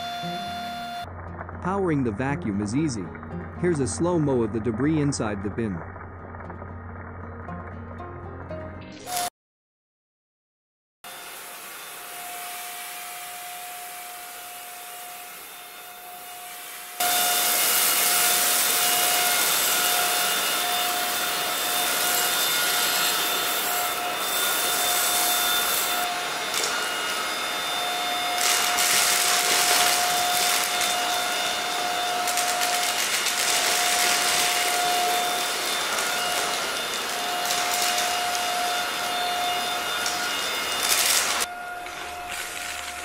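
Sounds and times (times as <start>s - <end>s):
stick vacuum motor whine: 0.0s - 1.1s, 11.1s - 43.0s.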